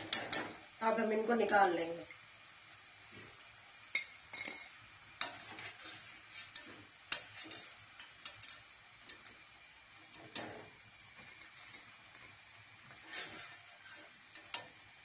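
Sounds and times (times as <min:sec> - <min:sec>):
oil sizzling: 0:00.0 - 0:15.0
skimmer scraping metal pan: 0:05.2 - 0:08.6, 0:10.1 - 0:12.0, 0:12.9 - 0:14.8.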